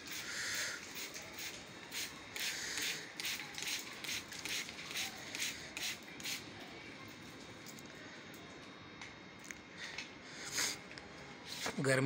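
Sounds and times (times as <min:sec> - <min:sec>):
spray bottle hissing sprays: 0:00.0 - 0:06.5.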